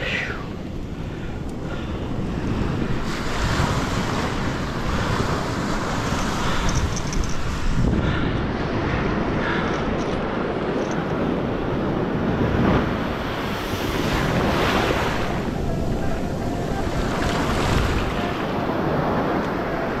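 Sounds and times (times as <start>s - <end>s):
ocean surf washing onto beach: 0.0s - 20.0s
wind rumbling on microphone: 0.0s - 20.0s.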